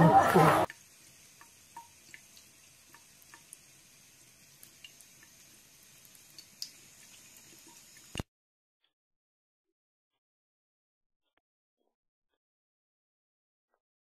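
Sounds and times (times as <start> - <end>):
faucet water trickling into sink: 0.1 - 8.3
cat drinking drips and clicks: 0.7 - 8.2.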